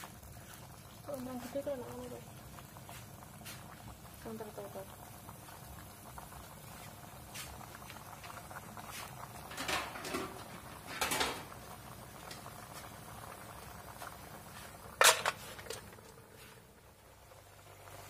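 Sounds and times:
clams crackling in a wok: 0.0s - 17.8s
lid clanking on a wok: 9.5s - 11.5s, 15.0s - 15.8s.

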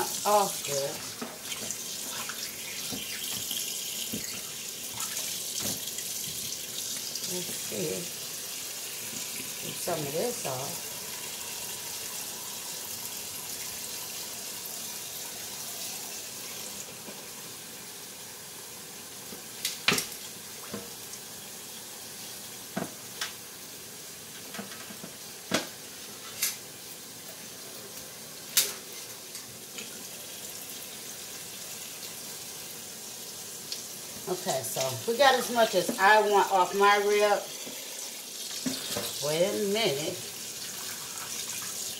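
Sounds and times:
faucet running into metal sink: 0.0s - 17.1s, 34.3s - 41.9s.

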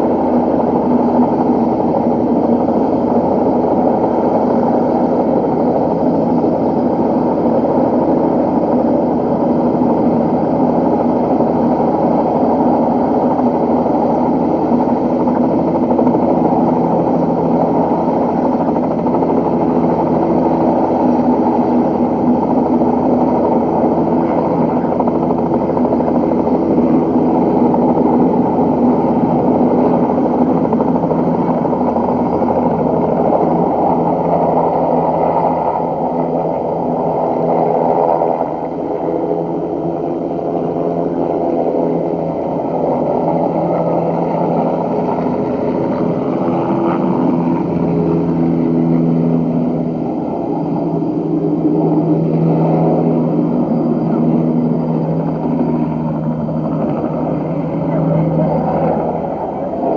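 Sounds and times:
helicopter engine and rotor drone: 0.0s - 59.9s.

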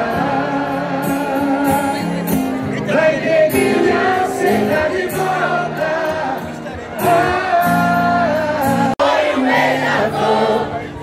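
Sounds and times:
men singing: 0.0s - 10.9s
crowd singing along: 0.0s - 11.0s.

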